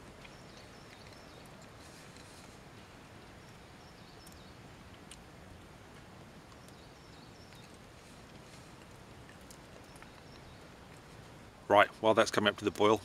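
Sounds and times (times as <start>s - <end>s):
faint steady hiss: 0.0s - 13.0s
faint sharp clicks: 4.2s - 5.3s, 7.4s - 11.1s.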